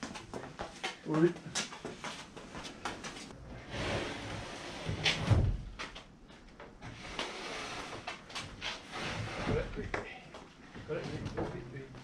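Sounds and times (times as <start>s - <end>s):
wooden panels scraping: 3.6s - 5.7s, 6.8s - 9.9s.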